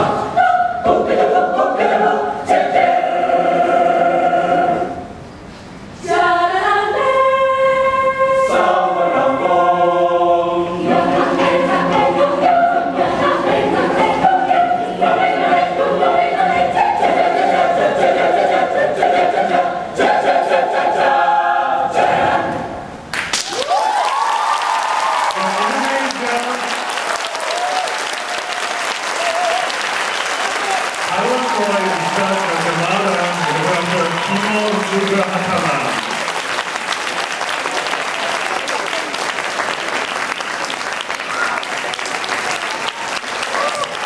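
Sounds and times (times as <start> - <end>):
mixed choir singing in harmony: 0.0 - 5.2, 6.0 - 23.0.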